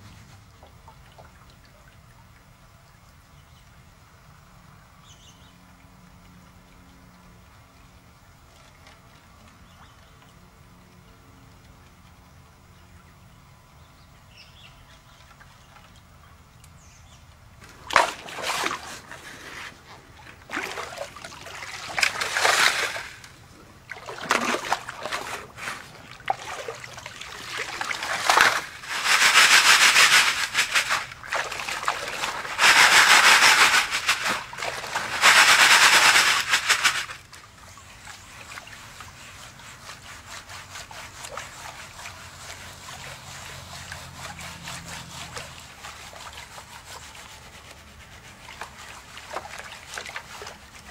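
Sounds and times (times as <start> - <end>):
water trickling and sloshing: 0.0 - 13.3, 14.8 - 50.9
gravel and water splashing: 17.6 - 37.4.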